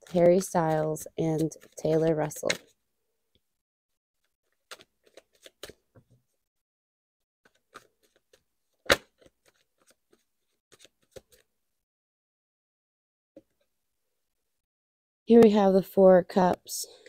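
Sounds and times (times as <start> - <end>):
cards being shuffled: 0.0 - 2.8, 4.6 - 5.8, 7.5 - 11.5.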